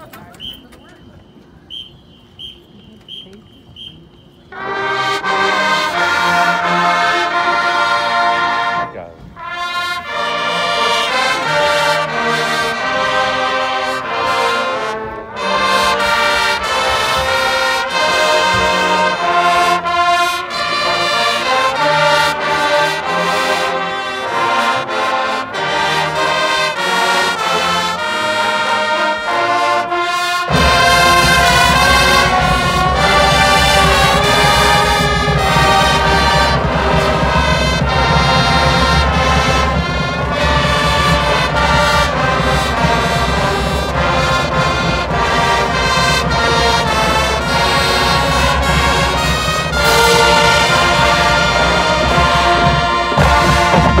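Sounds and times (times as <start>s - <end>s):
marching band playing: 0.0s - 54.0s.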